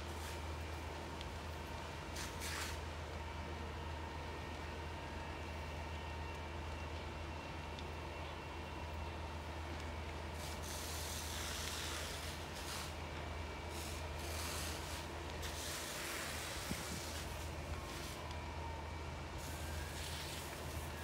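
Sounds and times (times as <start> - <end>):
hiss: 2.2 - 2.8, 10.4 - 13.0, 13.7 - 18.2, 19.4 - 21.0.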